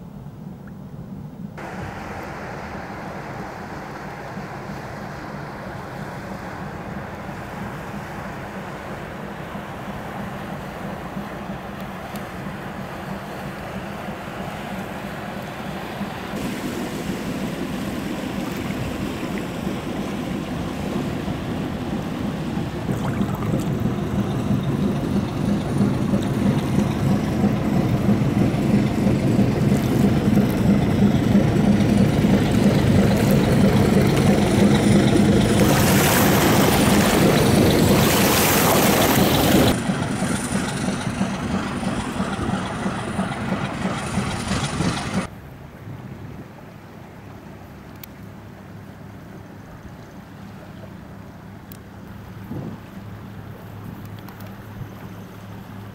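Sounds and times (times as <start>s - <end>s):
barge diesel engine droning: 1.6s - 45.3s
water rushing from wake: 1.6s - 55.9s.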